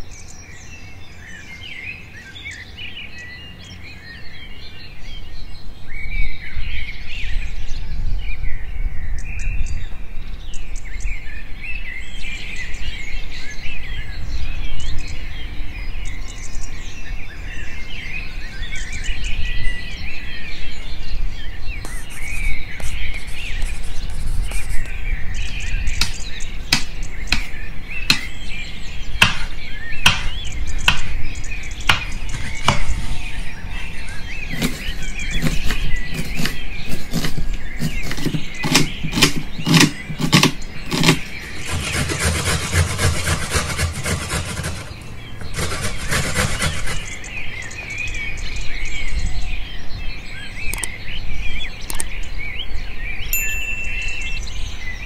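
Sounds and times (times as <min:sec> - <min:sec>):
birds chirping: 0:00.0 - 0:55.0
knife chopping on wooden board: 0:28.1 - 0:28.3, 0:29.2 - 0:29.5, 0:30.1 - 0:31.1, 0:31.9 - 0:33.0, 0:34.5 - 0:44.9.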